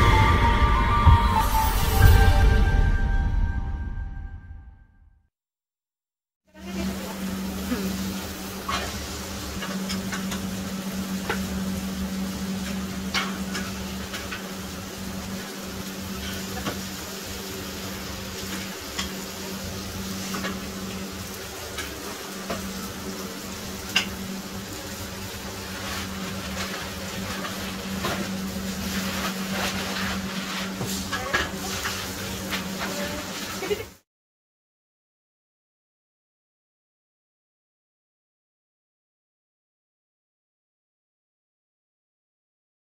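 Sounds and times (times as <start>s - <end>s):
meat sizzling on a griddle: 6.7s - 33.9s.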